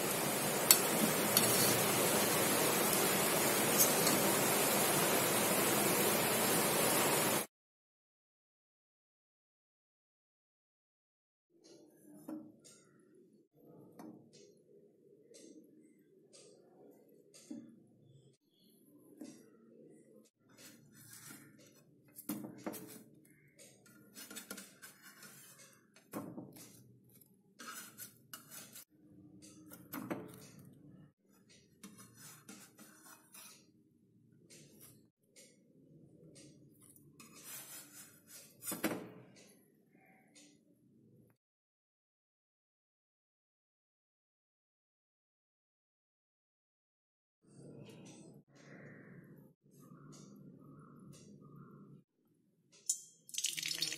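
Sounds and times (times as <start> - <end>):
food frying sizzle: 0.0 - 7.5, 53.3 - 53.9
spatula scraping and knocking pan: 0.2 - 4.9, 20.5 - 23.1, 24.0 - 26.9, 27.6 - 28.9, 31.7 - 33.8, 37.2 - 39.2.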